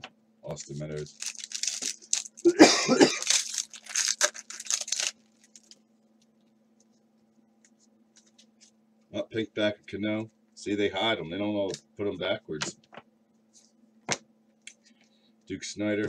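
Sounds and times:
faint low hum: 0:00.0 - 0:16.0
foil wrapper tearing and crinkling: 0:00.9 - 0:02.5, 0:03.1 - 0:05.8.

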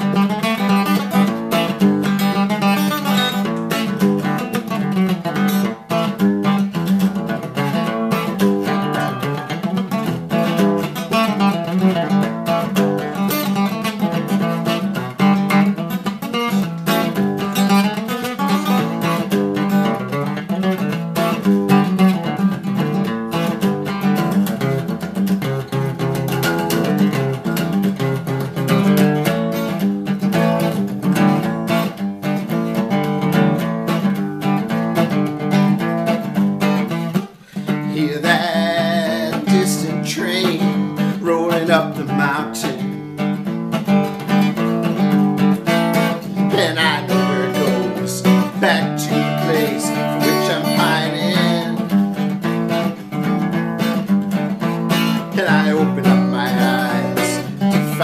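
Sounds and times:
acoustic guitar strumming: 0:00.0 - 0:58.0
man singing: 0:08.6 - 0:09.5, 0:37.5 - 0:43.0, 0:46.0 - 0:52.4, 0:54.9 - 0:58.0.

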